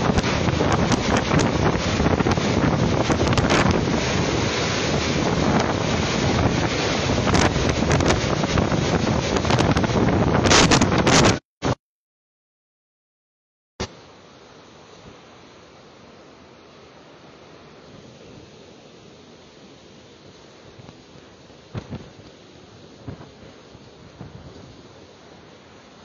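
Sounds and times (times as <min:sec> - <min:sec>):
strong wind and driving rain: 0:00.0 - 0:11.4, 0:13.8 - 0:26.0
crackles on microphone: 0:20.8 - 0:22.4, 0:23.0 - 0:23.4.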